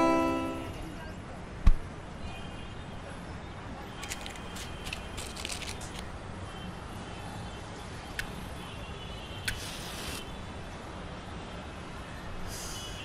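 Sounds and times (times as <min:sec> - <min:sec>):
distant traffic hum: 0:03.7 - 0:06.4
crackling rustles: 0:04.0 - 0:06.1.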